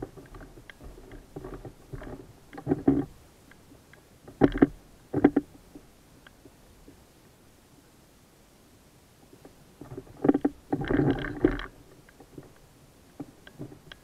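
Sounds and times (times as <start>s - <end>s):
knocks and thumps in a boat: 0.0s - 3.2s, 4.3s - 5.9s, 9.4s - 12.6s, 13.2s - 14.0s.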